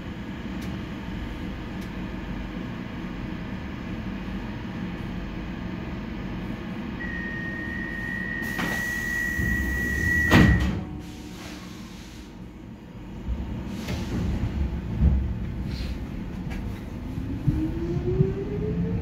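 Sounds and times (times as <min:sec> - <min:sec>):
low train hum: 0:00.0 - 0:19.0
high warning tone: 0:07.0 - 0:10.6
doors shutting with a bang: 0:10.2 - 0:10.9.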